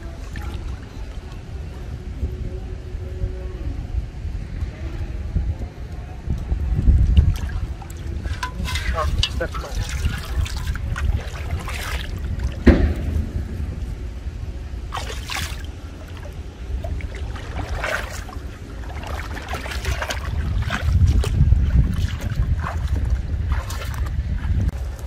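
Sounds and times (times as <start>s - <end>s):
wind rumble on microphone: 0.0s - 25.0s
splashing while wading in water: 7.2s - 12.6s, 14.9s - 24.2s.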